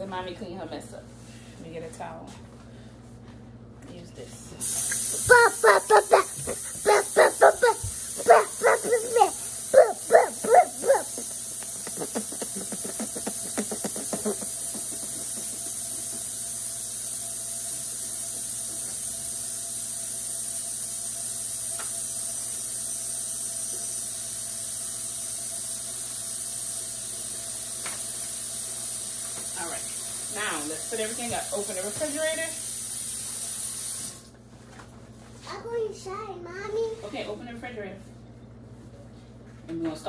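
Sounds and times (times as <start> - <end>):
high yelping barks: 5.3 - 11.3.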